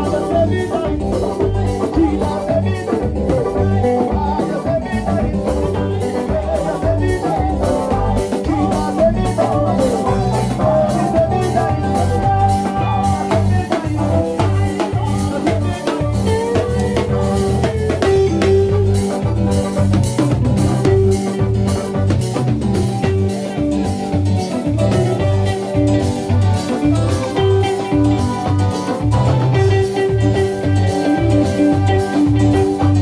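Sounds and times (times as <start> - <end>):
drum kit beat: 0.0 - 33.0
electric bass line: 0.0 - 33.0
live band playing: 0.0 - 33.0.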